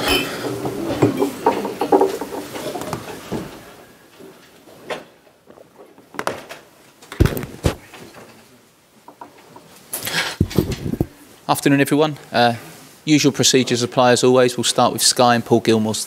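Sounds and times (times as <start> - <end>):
objects knocking on a table: 0.6 - 3.5, 7.1 - 8.3, 9.1 - 9.7.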